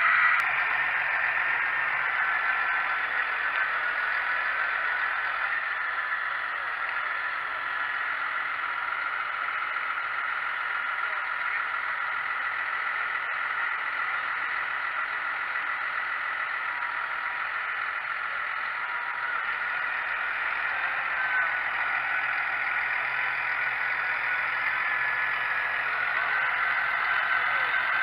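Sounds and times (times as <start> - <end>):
tractor engine droning: 0.0 - 28.0.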